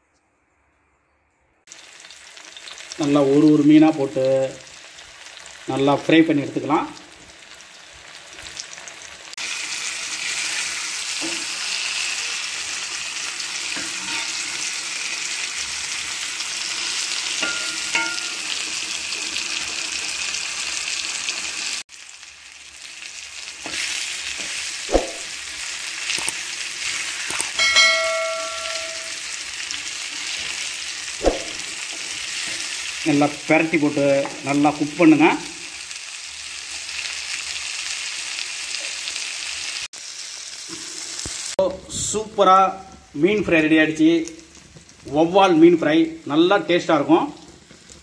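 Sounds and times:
fish sizzling in oil: 1.7s - 41.6s, 43.6s - 48.0s
spatula knocking on pan: 27.6s - 29.2s
short ringing tone: 27.6s - 29.3s.

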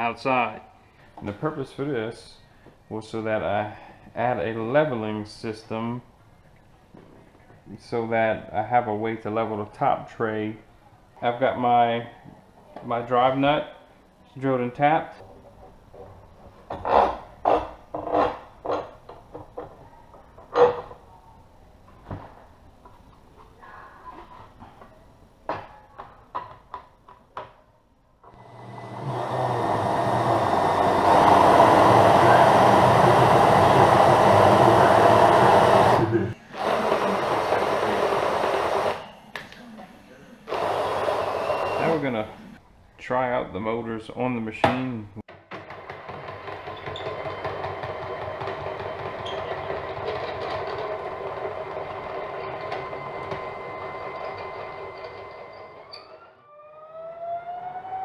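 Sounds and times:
stepper motors whining: 28.3s - 39.2s, 40.4s - 42.6s
cordless drill spinning lead screw: 28.4s - 39.1s, 40.5s - 42.0s.

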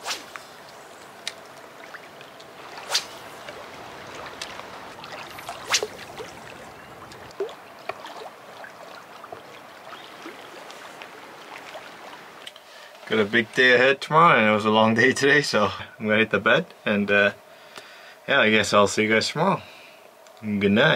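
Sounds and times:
small waves lapping against rocks: 0.5s - 13.2s
water plops and ticks: 3.4s - 12.6s.

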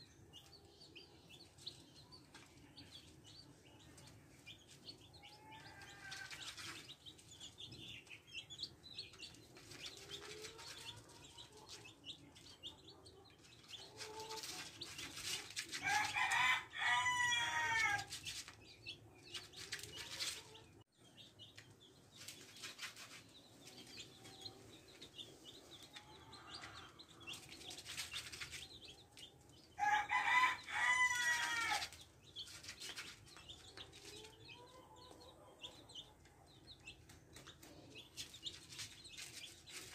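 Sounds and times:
chicks pecking grain: 0.0s - 39.9s
chicks peeping: 0.0s - 39.9s
chicken drawn-out call: 15.8s - 18.1s, 29.8s - 31.9s.

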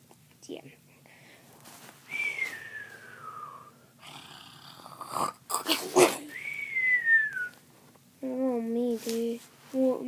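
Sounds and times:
boy fake snoring: 4.0s - 5.9s.

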